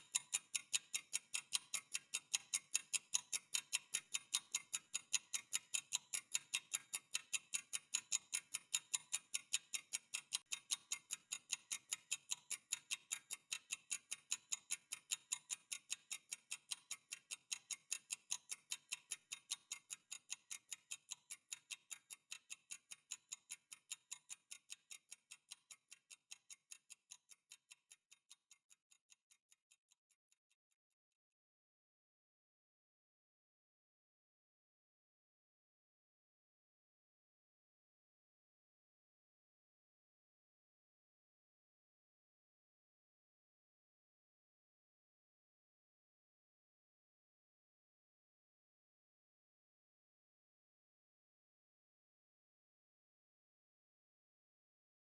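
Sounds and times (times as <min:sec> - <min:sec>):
clock ticking: 0:00.0 - 0:30.0.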